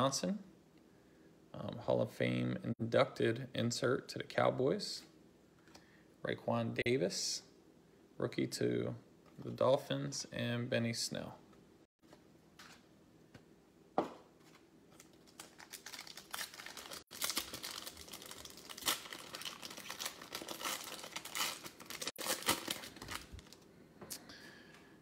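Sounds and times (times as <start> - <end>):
plastic wrapper crinkling and tearing: 14.5 - 23.6.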